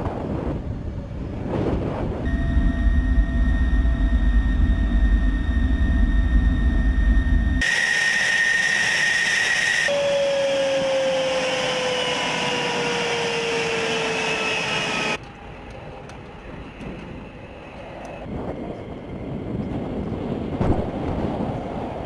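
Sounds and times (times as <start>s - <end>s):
wind noise: 0.0s - 7.6s, 14.9s - 22.0s
jet engine whine: 0.0s - 22.0s.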